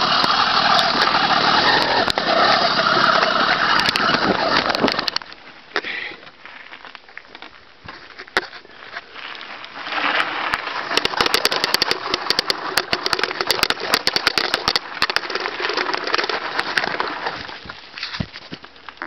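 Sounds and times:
small two-stroke engine running: 0.0 - 5.2, 10.8 - 17.2
bike clattering and rattling: 0.0 - 5.4, 6.5 - 19.0.

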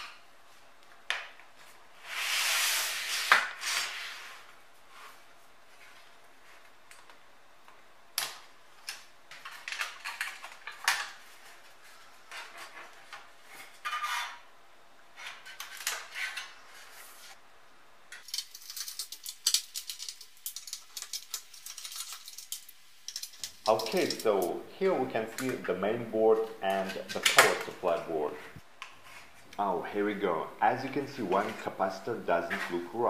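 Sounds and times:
small clicks and rattles: 18.2 - 24.5.

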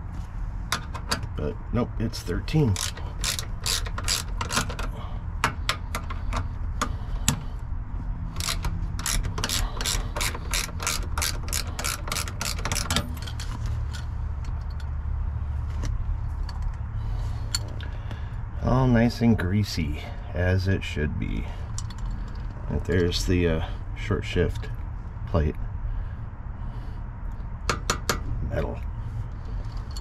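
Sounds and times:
ratchet wrench clicking: 2.6 - 7.4, 8.3 - 14.9, 21.7 - 22.6.

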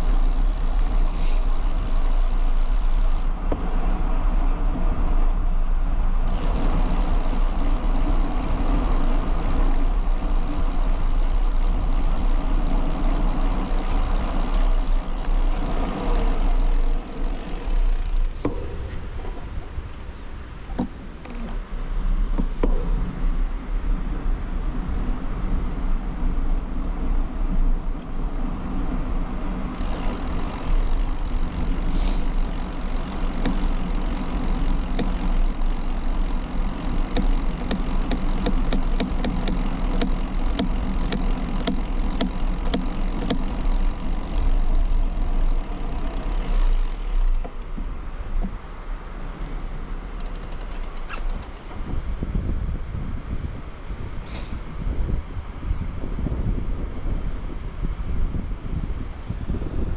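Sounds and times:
light ticks from bicycle: 0.0 - 3.7, 6.3 - 18.6, 29.7 - 48.6, 50.0 - 51.7
tyre and road rumble: 0.0 - 59.9
wind buffeting microphone: 0.0 - 59.9.

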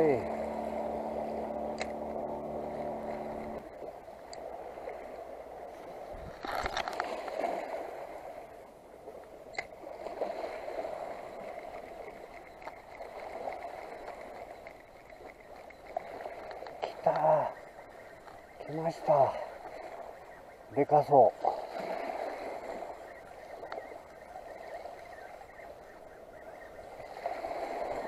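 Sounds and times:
steady hum: 0.0 - 5.0
small waves lapping over rocks: 2.7 - 26.1, 26.8 - 28.0.

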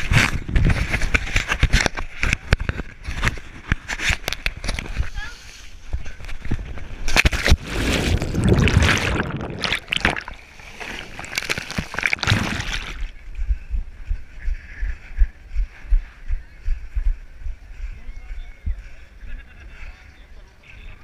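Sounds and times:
water splashing and sloshing: 6.6 - 13.2.

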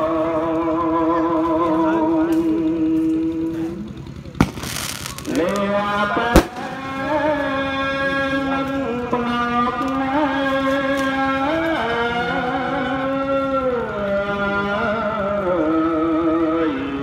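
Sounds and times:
wavering chant: 0.0 - 4.0, 4.9 - 17.0
firework bang: 4.4 - 5.6, 6.3 - 7.2
firework hissing rush: 4.4 - 5.6
firework crack: 4.4 - 7.3.

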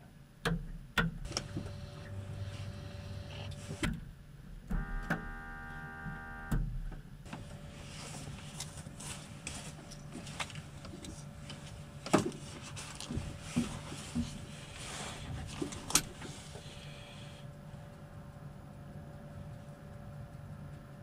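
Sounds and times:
steady low hum: 0.1 - 21.0
clicks and knocks in cockpit: 0.4 - 1.5.

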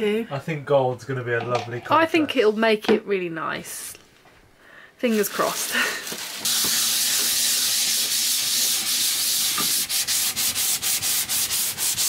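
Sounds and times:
hand sanding wood panel: 5.2 - 12.0.

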